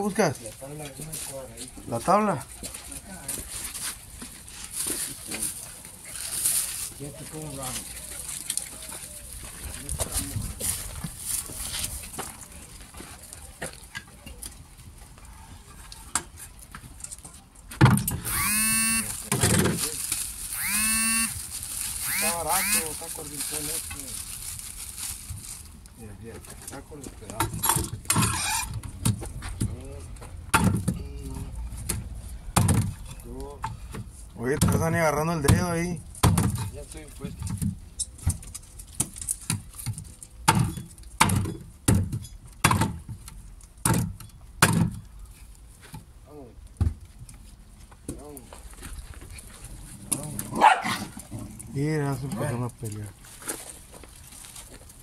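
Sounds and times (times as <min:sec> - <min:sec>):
board squealing sliding on surface: 0:18.2 - 0:19.2, 0:20.6 - 0:21.4, 0:22.0 - 0:23.0, 0:28.2 - 0:28.7.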